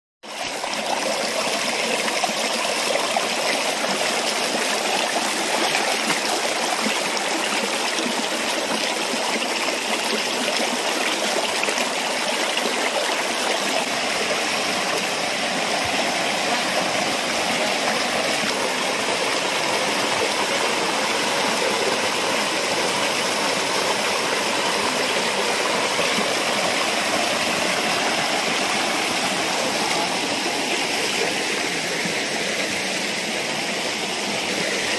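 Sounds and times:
stream splashing over stones: 0.3 - 34.9.

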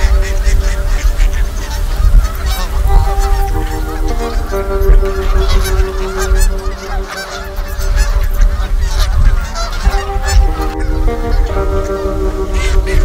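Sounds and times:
soft music of held chords: 0.0 - 13.0
waterfowl calling: 0.0 - 13.0
wind rumble on microphone: 0.0 - 13.0.

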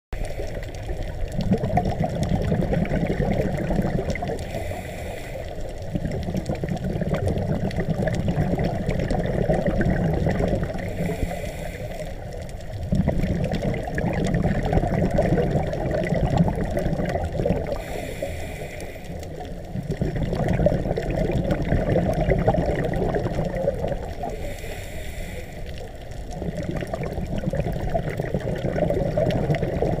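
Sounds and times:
bubbling exhaust: 0.2 - 25.5, 26.2 - 30.0
hissing regulator inhale: 4.4 - 5.9, 10.8 - 12.4, 17.7 - 19.5, 24.2 - 26.0.

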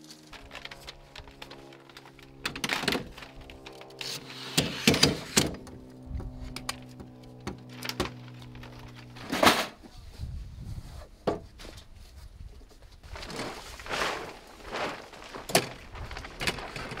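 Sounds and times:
loud ladder clatter: 6.6 - 9.8.

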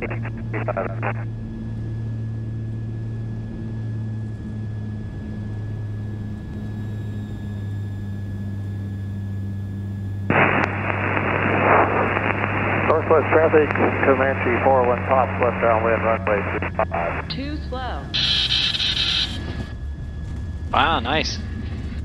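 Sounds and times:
radio hiss: 0.0 - 1.2, 10.3 - 17.4, 18.2 - 19.6
aircraft engines droning: 0.0 - 22.0.

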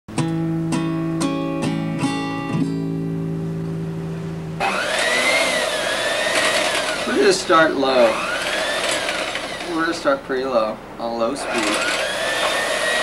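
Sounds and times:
acoustic guitar strumming: 0.1 - 4.8
electric hand mixer whirring: 4.6 - 10.1, 11.4 - 13.0.

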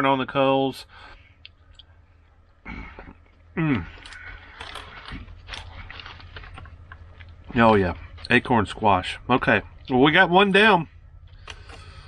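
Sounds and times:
aluminium foil crinkling: 4.1 - 7.4.

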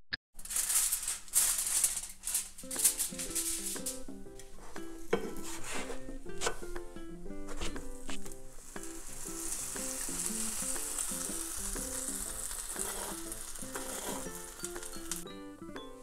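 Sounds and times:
light background melody: 2.6 - 16.0
butter sizzling in a pan: 7.4 - 15.3.

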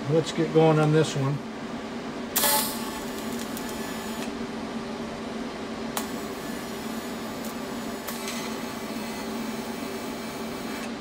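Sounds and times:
constant hum: 0.0 - 11.0
welding arc hissing: 2.4 - 4.3, 6.0 - 11.0
welding arc crackle: 2.4 - 4.4, 6.0 - 11.0.

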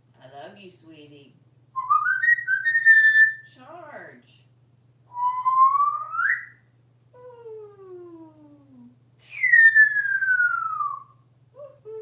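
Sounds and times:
parrot whistling calls: 1.8 - 3.5, 5.1 - 6.6, 9.3 - 11.2.

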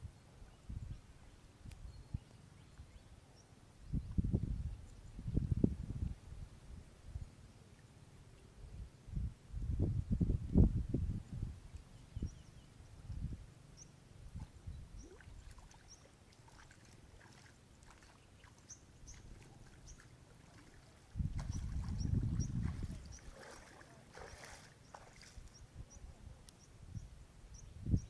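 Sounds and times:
water sloshing and lapping: 14.4 - 25.6.

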